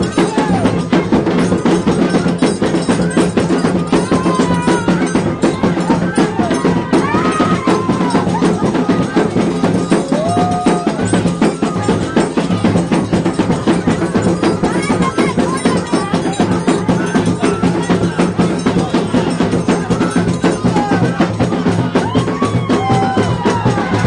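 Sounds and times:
drums: 0:00.0 - 0:24.0.

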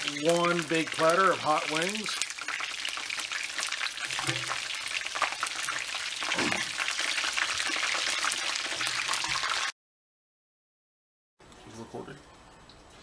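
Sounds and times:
chicken wings frying in oil: 0:00.0 - 0:09.7.

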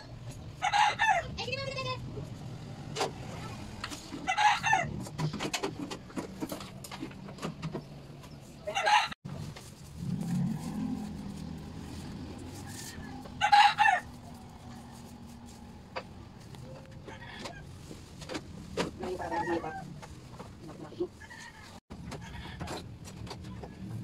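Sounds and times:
chickens calling: 0:10.0 - 0:17.8.

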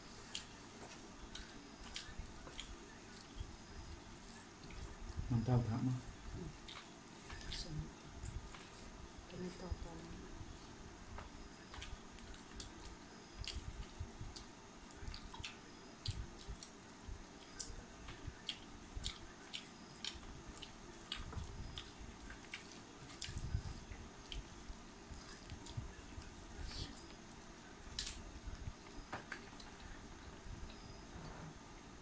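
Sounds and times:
chewing and wet mouth clicks: 0:00.3 - 0:03.5, 0:06.6 - 0:08.7, 0:11.7 - 0:27.3, 0:27.9 - 0:30.0.

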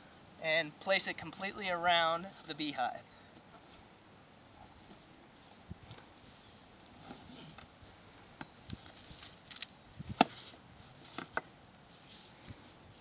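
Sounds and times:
ratchet strap clicks and knocks: 0:09.5 - 0:09.7.

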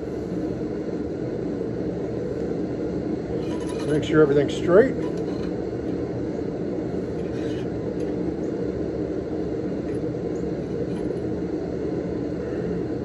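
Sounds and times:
faint steel scrape: 0:03.4 - 0:04.1, 0:07.1 - 0:07.8.

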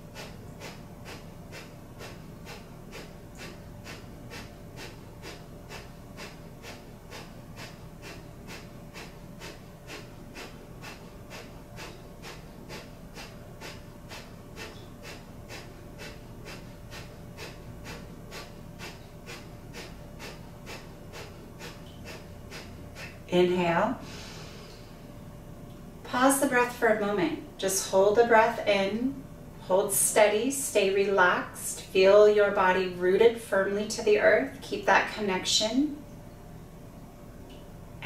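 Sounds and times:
rapid shallow breathing through nose: 0:00.0 - 0:23.3, 0:24.0 - 0:25.2.

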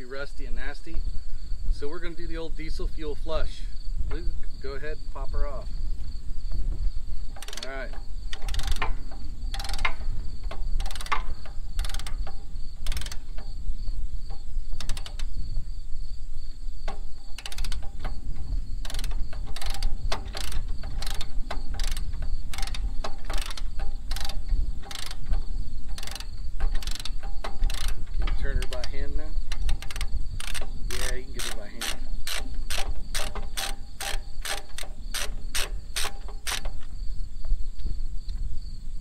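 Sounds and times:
insect trilling: 0:00.0 - 0:37.5
wind rumble on microphone: 0:00.0 - 0:39.0
ratchet wrench clicking: 0:07.3 - 0:13.5, 0:14.3 - 0:15.4, 0:16.8 - 0:36.8.

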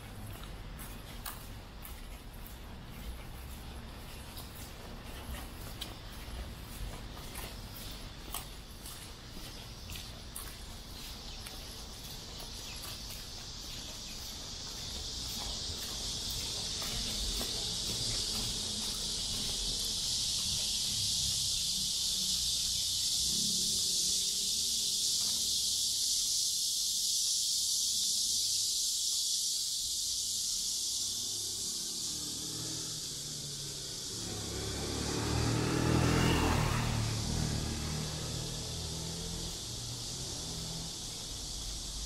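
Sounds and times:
cicadas droning: 0:00.0 - 0:42.0.

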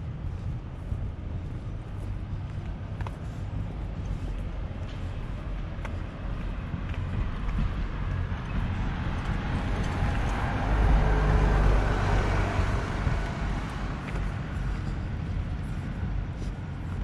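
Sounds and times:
vehicle driving past: 0:08.6 - 0:15.5.

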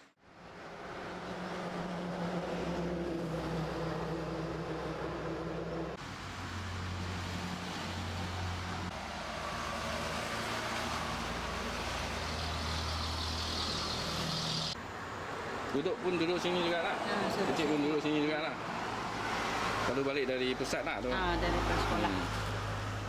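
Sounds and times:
low engine hum: 0:00.2 - 0:14.8.

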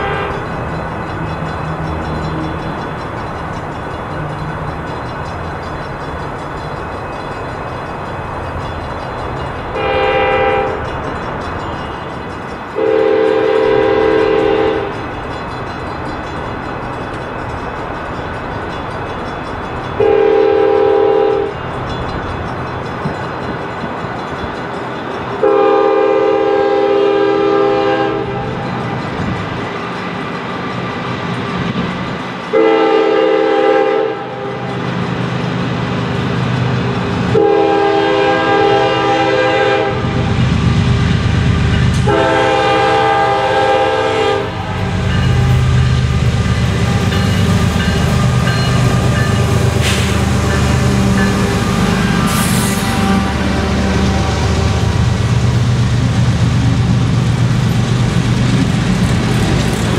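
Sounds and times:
locomotive air horn blasts: 0:00.0 - 0:00.5, 0:09.8 - 0:10.9, 0:12.8 - 0:15.0, 0:20.0 - 0:21.6, 0:25.4 - 0:28.6, 0:32.5 - 0:34.7, 0:37.3 - 0:40.3, 0:42.0 - 0:45.6, 0:47.8 - 0:55.0
train rumbling on wheels: 0:00.0 - 0:59.9.

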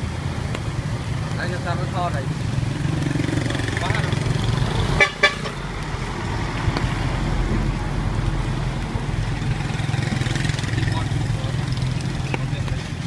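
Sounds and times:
low rumble of street traffic: 0:00.0 - 0:13.0
vehicle horn tooting: 0:05.0 - 0:05.6.

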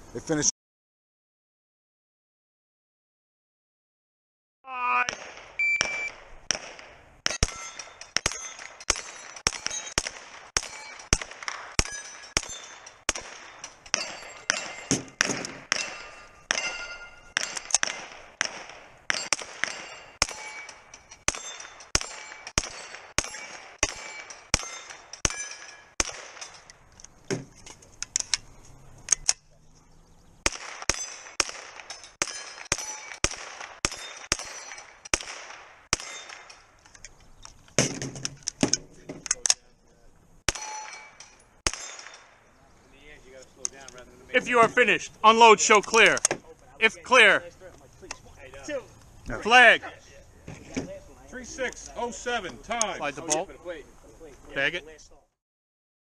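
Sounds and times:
carbine gunshots: 0:05.0 - 0:26.8, 0:30.4 - 0:36.8, 0:40.5 - 0:42.5
steel targets clanging: 0:07.2 - 0:26.8, 0:30.8 - 0:35.2, 0:35.9 - 0:37.2, 0:40.5 - 0:42.4.

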